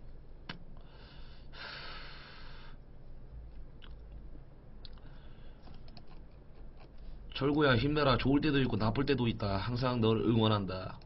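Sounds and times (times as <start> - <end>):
breathy inhaling hiss: 0.8 - 2.8.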